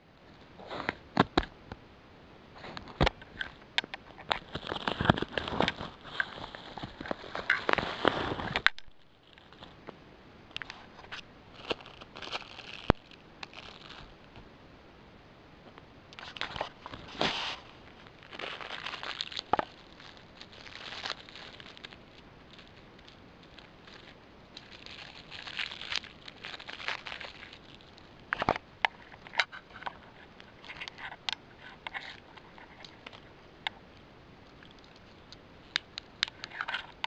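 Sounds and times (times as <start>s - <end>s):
plastic mailer crinkling: 2.9s - 9.8s, 10.6s - 14.4s, 16.2s - 33.2s.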